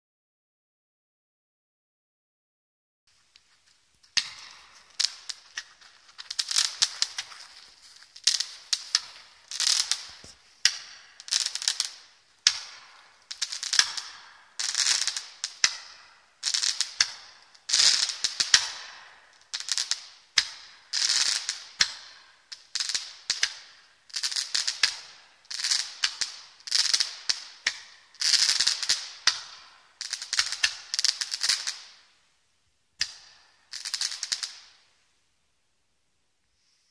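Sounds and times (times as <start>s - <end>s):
roman candle firing crackling comets: 3.3s - 32.2s.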